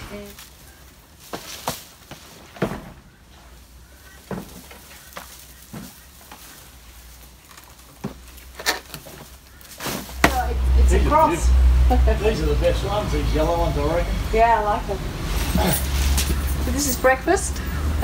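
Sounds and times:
branches snapping: 0.0 - 10.7
dry palm fronds rustling: 0.0 - 18.0.

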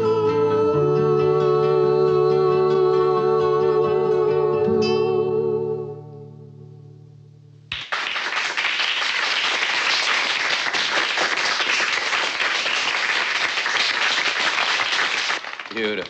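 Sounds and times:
crowd applauding: 7.7 - 16.0.

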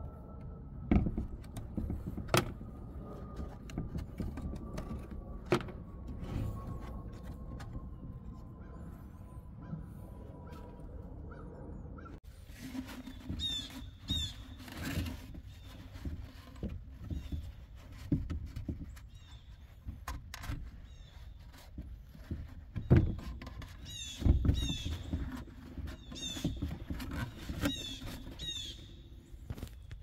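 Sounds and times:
knocks and thumps: 0.9 - 2.8, 21.4 - 28.5.

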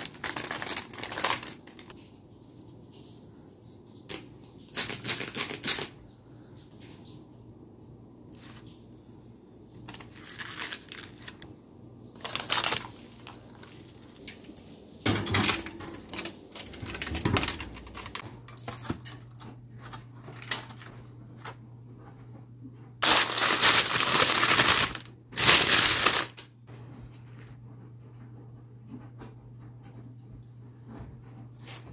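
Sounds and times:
parchment paper crinkling: 0.0 - 2.0, 4.1 - 6.0, 8.3 - 8.8, 9.7 - 21.6, 23.0 - 26.5.

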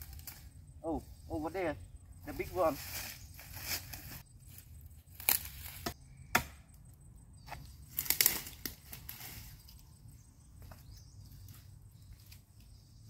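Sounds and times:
bark and undergrowth crunching: 2.3 - 6.0
machete striking tree trunk: 5.2 - 6.8.

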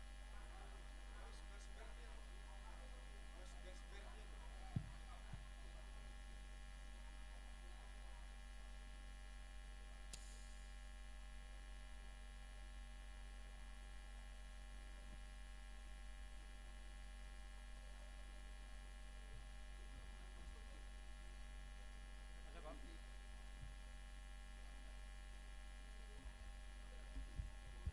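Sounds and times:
electrical mains hum: 0.0 - 27.9
faint buzz of steady tones: 0.0 - 27.9
faint click: 10.1 - 10.6.

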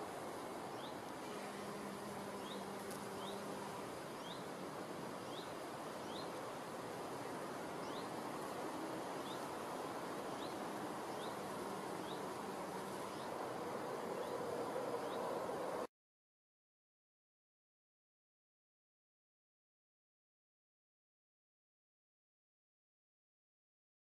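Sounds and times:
outdoor hiss: 0.0 - 15.9
bee buzzing: 0.2 - 14.4.

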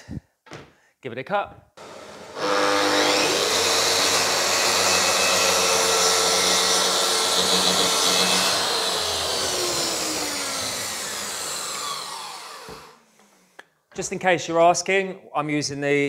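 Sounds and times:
dust extractor running: 1.8 - 13.0
track saw cutting a board: 1.8 - 13.0.

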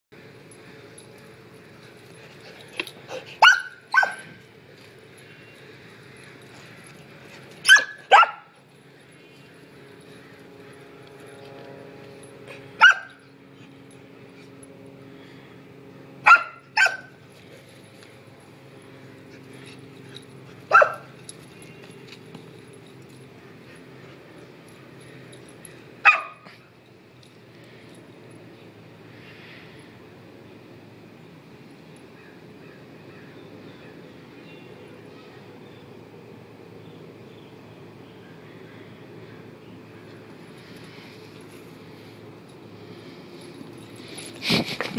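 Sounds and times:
dog barking: 3.4 - 4.3, 7.7 - 8.5, 12.8 - 13.2, 16.2 - 17.1, 20.7 - 21.1, 26.0 - 26.4.

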